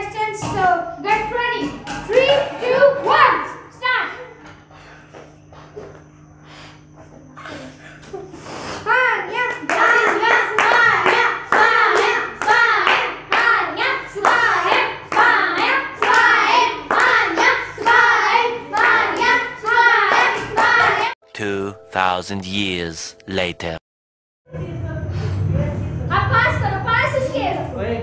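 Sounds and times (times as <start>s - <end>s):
children clapping: 9.6s - 13.6s, 14.2s - 15.4s, 16.0s - 21.2s
children chanting: 9.7s - 21.8s.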